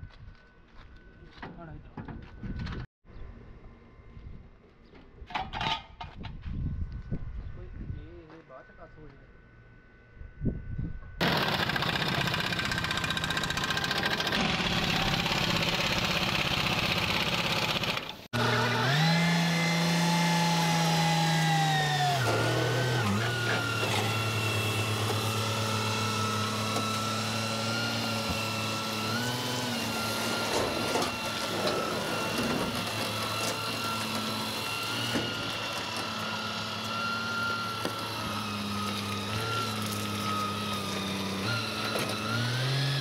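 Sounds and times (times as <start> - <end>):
motor droning hum: 18.0 - 43.0.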